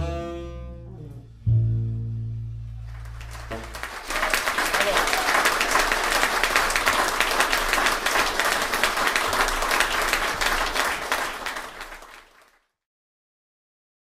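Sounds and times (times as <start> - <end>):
audience applauding: 2.8 - 12.6.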